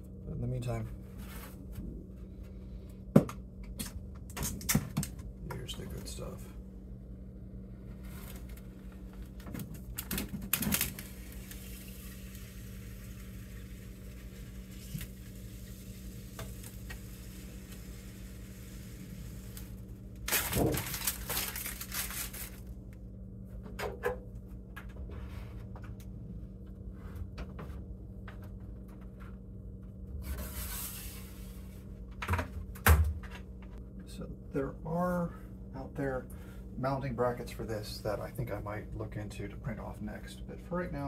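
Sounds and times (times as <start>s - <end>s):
low hum: 0.0s - 41.0s
plastic film peeling crackle: 8.0s - 22.7s.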